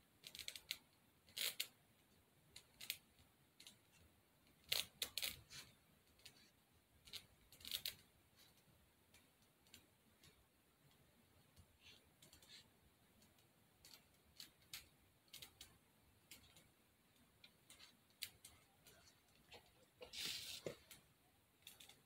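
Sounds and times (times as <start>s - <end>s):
hand tool scraping spackle: 20.0s - 20.9s.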